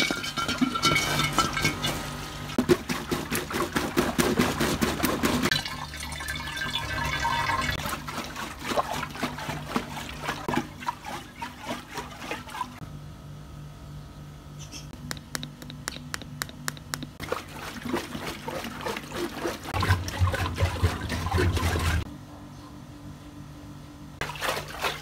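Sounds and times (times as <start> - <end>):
water sloshing in rubber balloon: 0.4 - 12.8, 17.0 - 22.1, 24.2 - 25.0.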